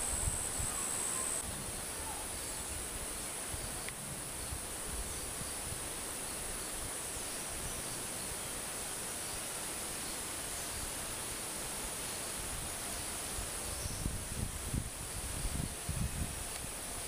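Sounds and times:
high-pitched insect drone: 0.0 - 1.4
outdoor hiss: 0.0 - 17.0.

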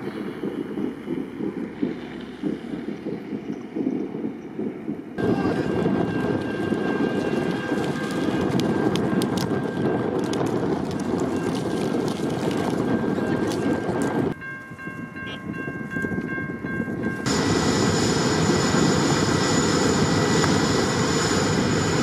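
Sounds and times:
hum of steady tones: 0.0 - 11.6
train rumbling: 0.0 - 22.0
high whine: 17.3 - 22.0.

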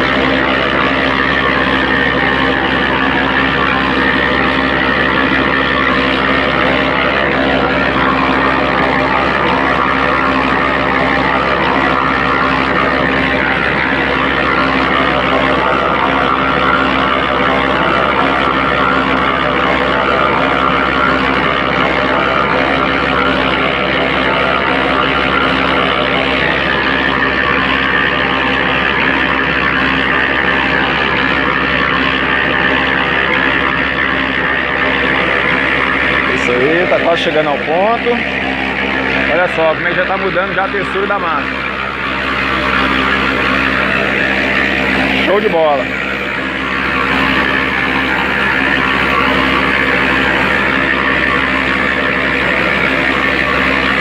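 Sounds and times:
concrete mixer motor hum: 0.0 - 54.0.

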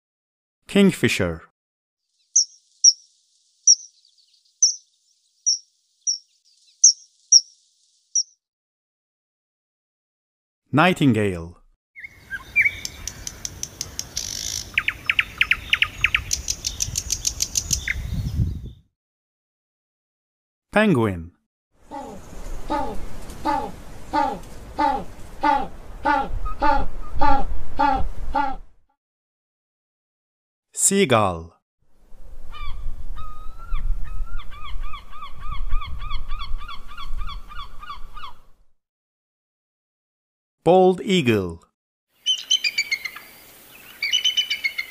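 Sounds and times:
nightingale singing: 2.2 - 8.4, 12.0 - 18.8, 42.2 - 44.9
gull calling: 21.9 - 28.6.

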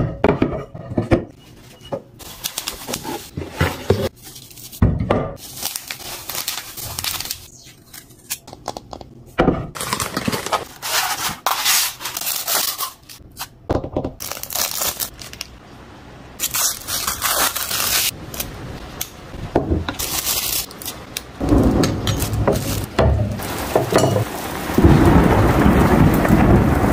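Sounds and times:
plastic wrap crinkling: 2.2 - 4.8, 5.4 - 8.4, 9.8 - 13.2, 14.2 - 15.6, 16.4 - 18.6, 19.9 - 22.9.

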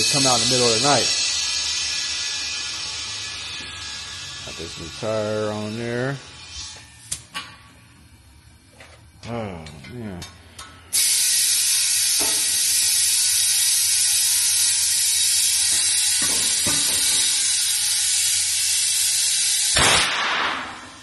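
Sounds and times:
compressed air hissing into tire: 0.0 - 3.2, 10.9 - 19.8.

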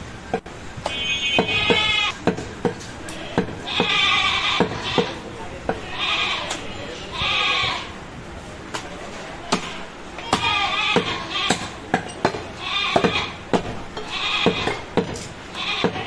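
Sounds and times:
goats bleating: 1.4 - 2.1, 3.2 - 5.2, 5.8 - 8.0, 9.6 - 11.8, 12.6 - 13.4, 14.0 - 14.8, 15.5 - 16.0.

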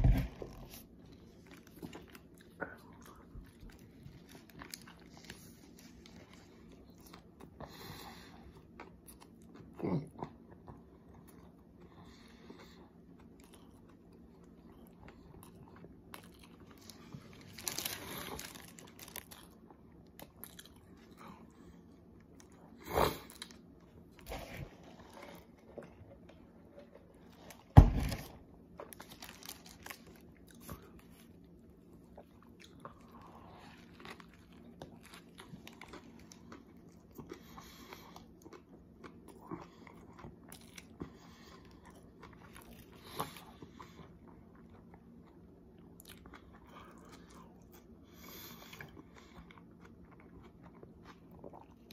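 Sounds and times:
person chewing sandwich: 0.0 - 27.8, 28.6 - 51.9
paper wrapper rustling: 17.3 - 19.4, 28.9 - 30.2.

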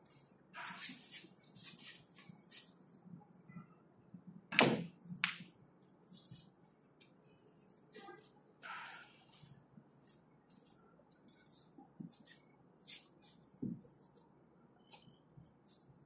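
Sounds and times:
billiard balls clicking: 4.5 - 5.5.

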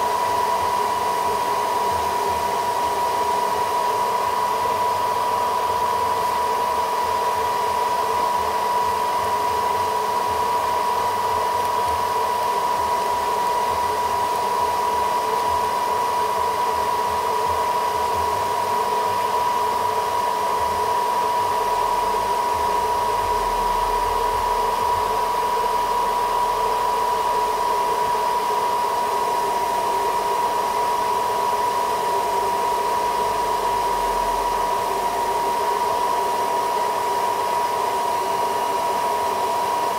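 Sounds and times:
hair dryer blowing: 0.0 - 39.9.

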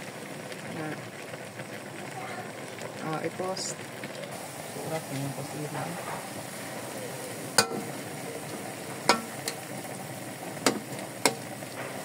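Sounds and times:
food sizzling in a wok: 0.0 - 12.0
metal spatula clanking on wok: 7.6 - 7.9, 9.0 - 9.7, 10.6 - 11.5.

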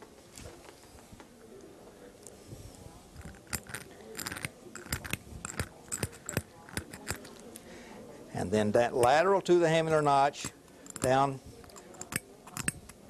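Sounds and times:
carving tool scratching: 3.2 - 7.3, 9.0 - 13.0.

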